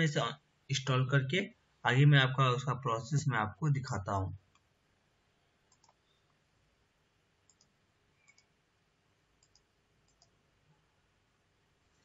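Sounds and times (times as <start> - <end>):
computer mouse clicks: 5.7 - 6.1, 7.4 - 8.5, 9.4 - 10.4.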